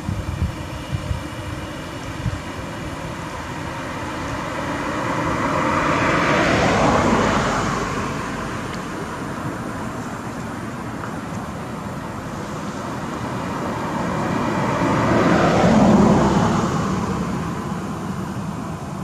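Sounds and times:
vehicle passing by: 0:02.8 - 0:10.4, 0:11.7 - 0:19.0.

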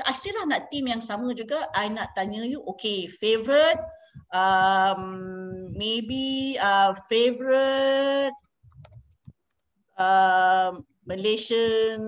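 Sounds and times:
faint keyboard clicks: 0:08.4 - 0:09.7.

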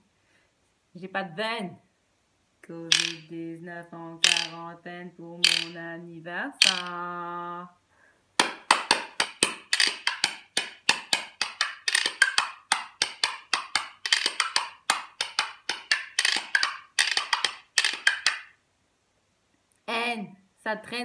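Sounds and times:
wooden spoons clacking: 0:02.9 - 0:03.3, 0:04.2 - 0:04.6, 0:05.4 - 0:05.8, 0:06.6 - 0:07.0, 0:08.4 - 0:18.5.

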